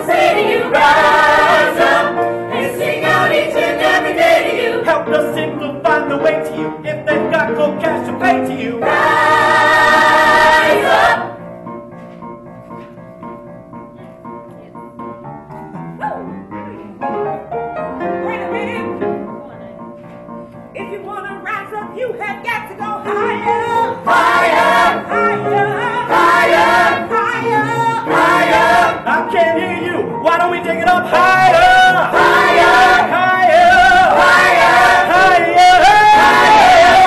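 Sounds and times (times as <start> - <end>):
choir singing: 0.0 - 11.4, 23.1 - 37.0
piano accompaniment: 0.0 - 37.0.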